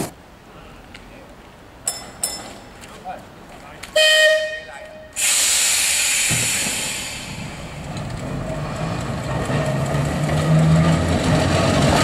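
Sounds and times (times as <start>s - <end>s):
tram motors humming: 4.2s - 12.0s
hiss: 5.2s - 7.8s.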